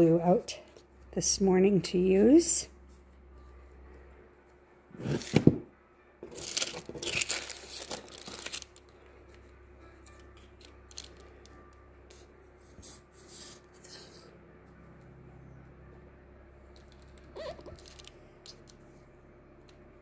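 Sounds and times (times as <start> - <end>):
paper tearing and crinkling: 6.3 - 8.8.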